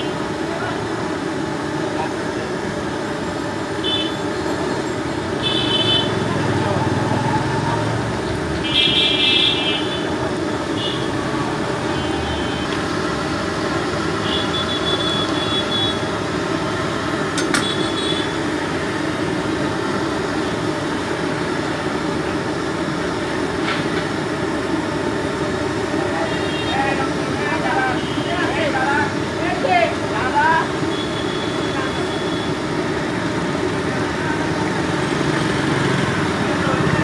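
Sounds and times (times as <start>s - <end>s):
deep-frying in hot oil sizzling: 8.2s - 37.0s
short high-pitched beeps: 14.3s - 16.0s, 30.9s - 32.6s.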